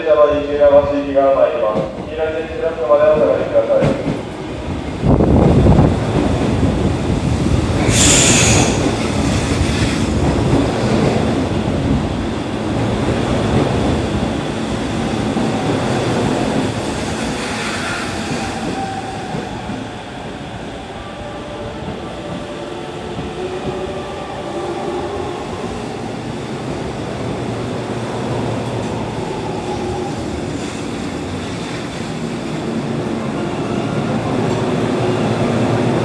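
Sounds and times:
electric train slowing: 5.8s - 11.6s.

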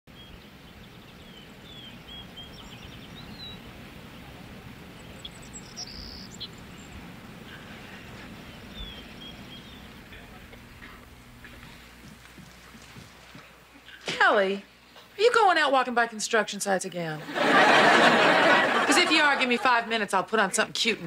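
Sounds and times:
bird chirps: 0.1s - 10.2s
steady background hiss: 0.1s - 21.0s.

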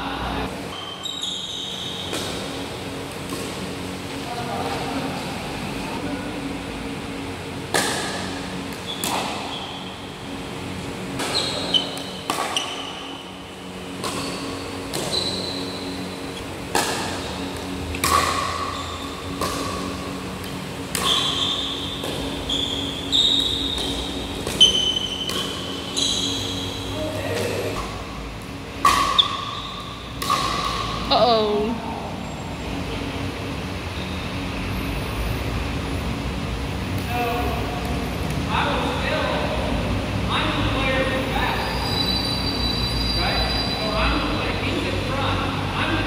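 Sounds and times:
steady low hum: 0.0s - 46.0s
sneakers squeaking on court: 0.7s - 2.4s, 8.8s - 10.0s, 11.2s - 13.3s, 14.0s - 17.3s, 21.0s - 27.6s.

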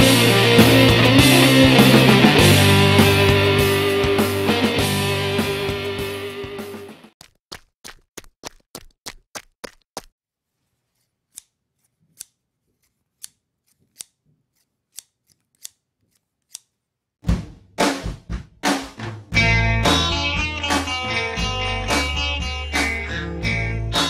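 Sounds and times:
heavy drum hits: 0.0s - 6.8s, 17.2s - 20.0s
intro music: 0.0s - 7.1s, 19.4s - 24.0s.

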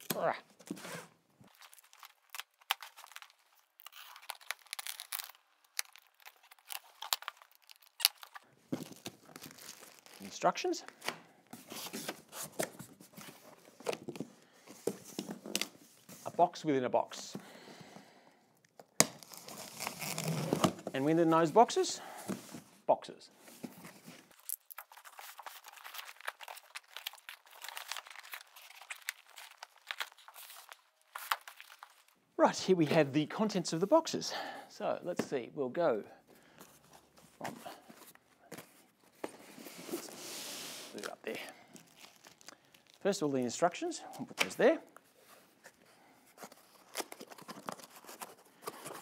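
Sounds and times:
packing tape slit and torn: 1.5s - 10.2s, 18.7s - 20.8s
cardboard scratching and crinkling: 46.4s - 49.0s.

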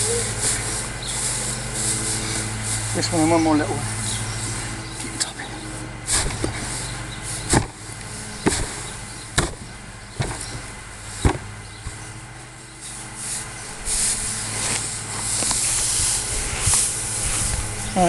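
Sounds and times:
loose hay rustling: 0.0s - 18.0s
wooden block thumping hay: 6.0s - 12.2s.

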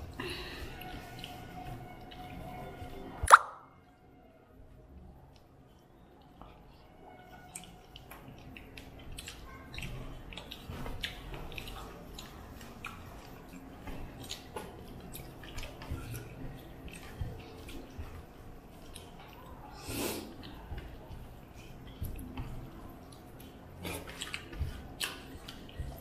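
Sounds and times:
fingers mixing rice on steel plates: 6.2s - 26.0s
chewing with wet mouth smacks: 7.3s - 26.0s.

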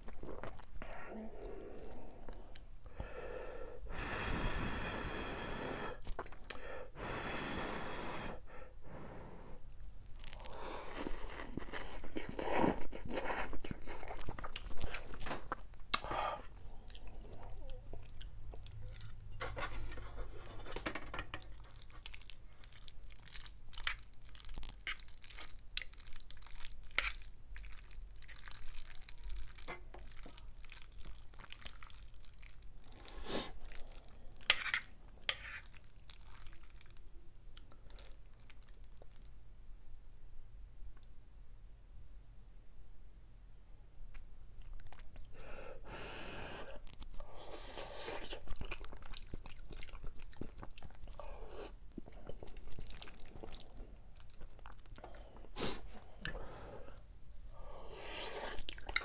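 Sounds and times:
noodles slurped: 10.2s - 19.2s, 46.3s - 56.5s, 57.9s - 59.0s
chewing: 10.2s - 39.3s, 44.1s - 45.4s, 46.6s - 56.5s, 58.2s - 59.0s.

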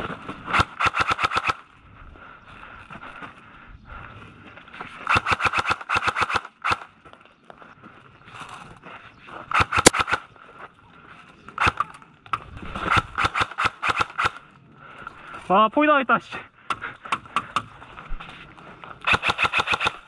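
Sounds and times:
airsoft guns firing clacks: 0.5s - 1.6s, 5.0s - 6.9s, 9.5s - 10.3s, 11.6s - 11.9s, 12.8s - 14.4s, 19.0s - 20.0s.

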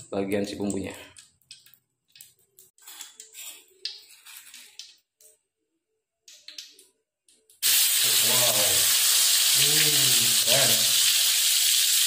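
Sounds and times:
metal spoon scraping in stone mortar: 2.8s - 4.8s.

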